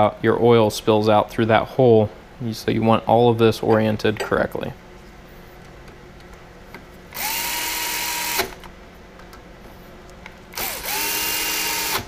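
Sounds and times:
cordless drill whining: 7.2s - 8.6s, 10.5s - 12.0s.

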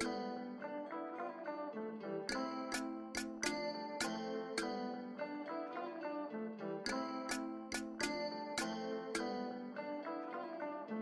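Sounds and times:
plucked guitar notes: 0.0s - 0.7s.

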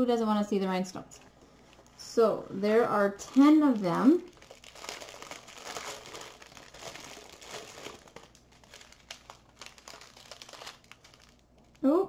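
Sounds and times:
plastic bags crinkling: 1.5s - 12.0s.

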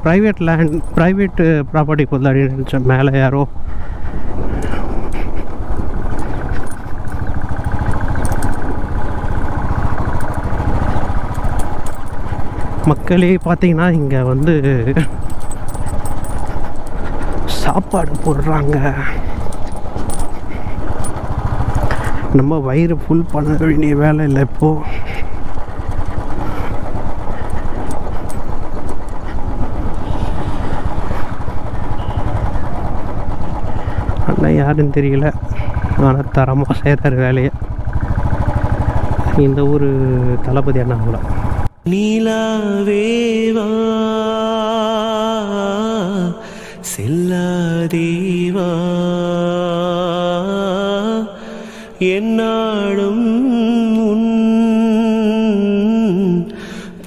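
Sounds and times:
heavy low rumble: 0.0s - 51.2s
motorcycle engine running: 0.0s - 57.0s.

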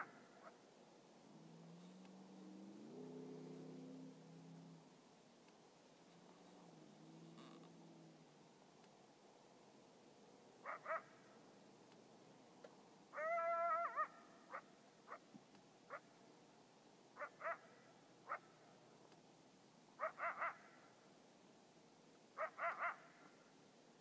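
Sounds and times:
coyote howl: 10.6s - 11.1s, 13.1s - 15.2s, 17.2s - 17.7s, 20.0s - 20.8s, 22.4s - 23.3s
coyote yips: 10.6s - 11.1s, 13.2s - 15.2s, 17.2s - 17.7s, 20.0s - 20.8s, 22.4s - 23.3s.

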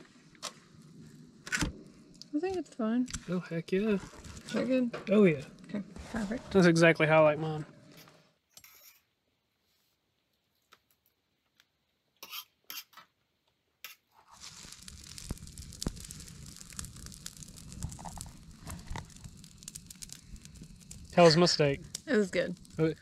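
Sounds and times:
rustling hiss with crackles: 0.0s - 8.0s, 14.1s - 23.0s.

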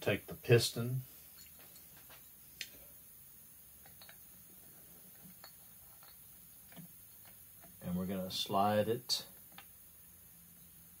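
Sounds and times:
faint metal parts clicking: 1.3s - 2.8s, 3.8s - 7.8s.

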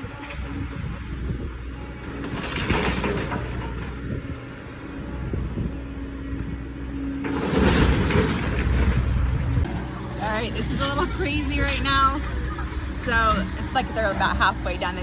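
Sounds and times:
diesel engine under load: 0.0s - 15.0s
hydraulic whine: 0.0s - 15.0s
debris crashing and crunching: 1.9s - 4.3s, 7.1s - 10.2s.

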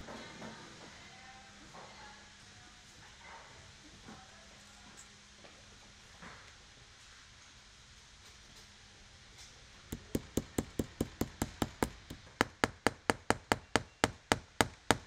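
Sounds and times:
hammer tapping nail head: 9.9s - 15.0s.

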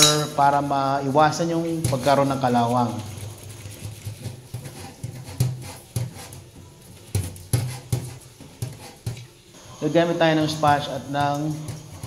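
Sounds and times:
pan knocking: 0.0s - 9.2s, 10.3s - 12.0s
sponge scrubbing a wok: 0.0s - 12.0s.

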